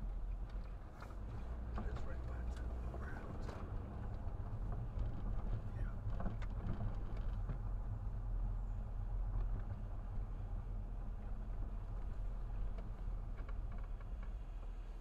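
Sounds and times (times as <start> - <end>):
car engine and road rumble: 0.0 - 15.0.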